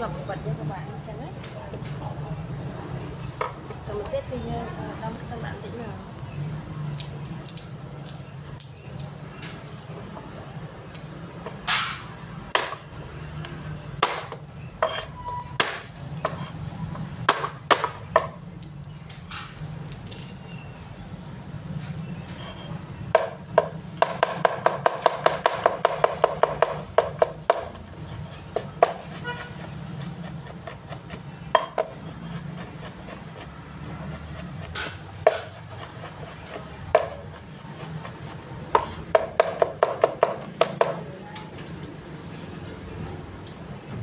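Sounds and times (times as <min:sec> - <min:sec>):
cleaver chopping on wooden board: 0:12.5 - 0:12.9, 0:14.0 - 0:16.4, 0:17.3 - 0:18.4, 0:23.2 - 0:27.8, 0:28.6 - 0:41.0.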